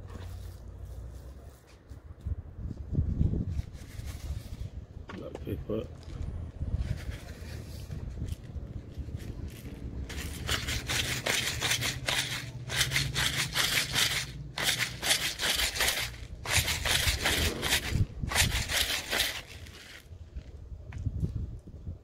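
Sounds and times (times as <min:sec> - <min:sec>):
pepper grinder crunching: 0:09.0 - 0:20.1.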